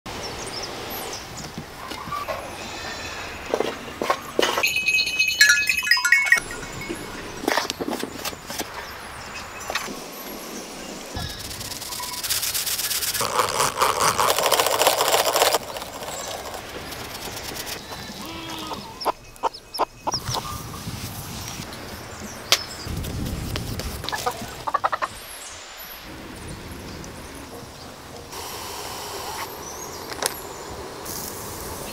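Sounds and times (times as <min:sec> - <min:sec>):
sieve rasping: 0:11.2 - 0:18.7
ducklings and fowl calling: 0:24.1 - 0:25.2.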